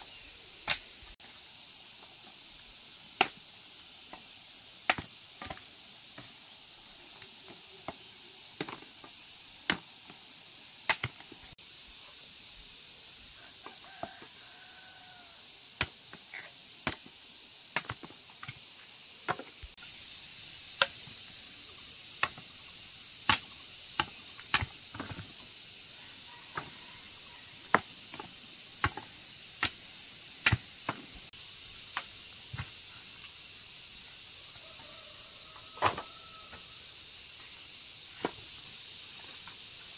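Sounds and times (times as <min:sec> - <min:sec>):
machete chopping cane stalks: 0:00.0 - 0:01.0, 0:03.1 - 0:03.5, 0:04.8 - 0:06.4, 0:09.6 - 0:10.2, 0:10.8 - 0:11.3, 0:15.8 - 0:19.6, 0:22.2 - 0:22.6, 0:23.2 - 0:25.4, 0:27.6 - 0:29.8, 0:30.4 - 0:31.1
insects droning: 0:00.0 - 0:39.9.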